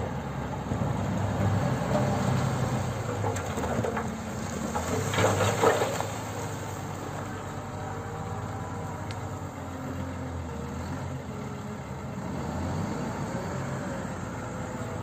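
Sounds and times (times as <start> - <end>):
wheel loader diesel engine: 0.0 - 15.0.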